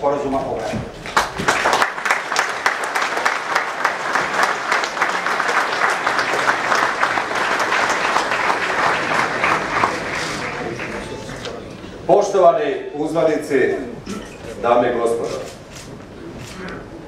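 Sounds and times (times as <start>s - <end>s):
audience applauding: 1.0s - 11.6s.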